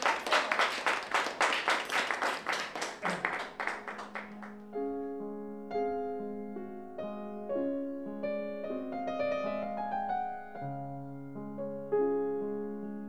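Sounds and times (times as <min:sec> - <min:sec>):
people applauding: 0:00.0 - 0:04.6
piano music: 0:02.8 - 0:13.0.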